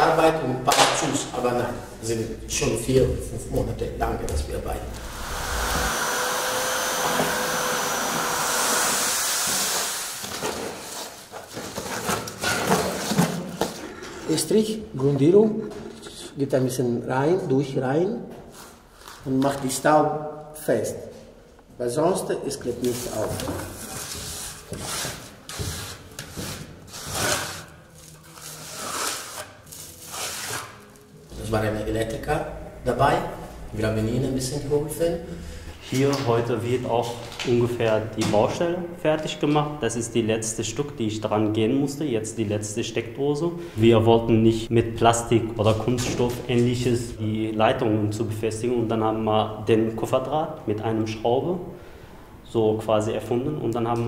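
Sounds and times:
electric motor whining: 5.0 - 9.6.

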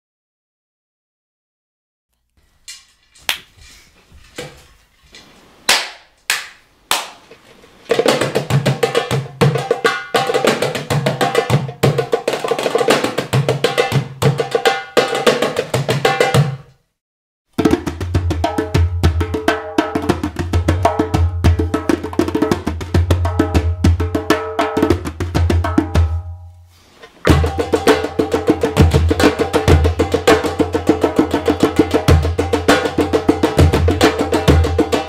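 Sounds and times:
goblet drums playing rhythm: 17.6 - 26.3, 27.2 - 35.0.

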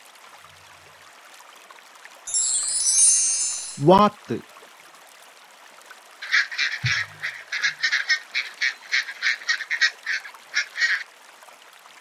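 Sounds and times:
duck quacking: 6.2 - 11.0.

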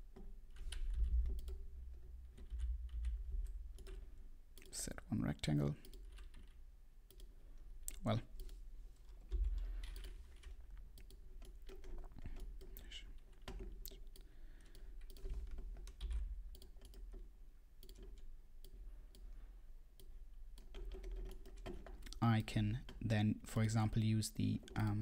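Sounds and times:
keyboard typing: 0.1 - 4.8, 8.1 - 19.3, 20.0 - 22.2.

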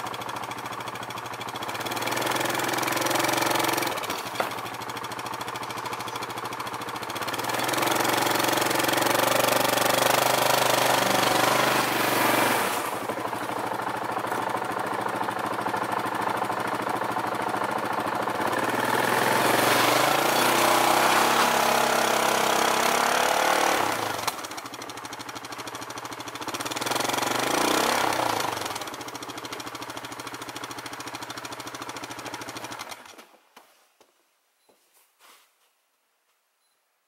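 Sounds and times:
atv engine revving: 0.0 - 33.2
wheels throwing snow: 2.1 - 16.2, 16.9 - 24.6.

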